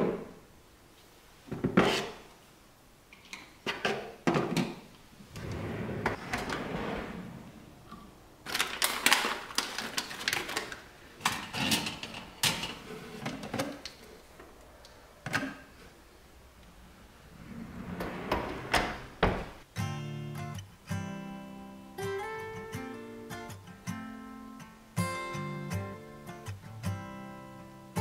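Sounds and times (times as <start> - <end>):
items rattling in drawer: 8.5 - 13.9
wooden drawers sliding: 17.2 - 19.6.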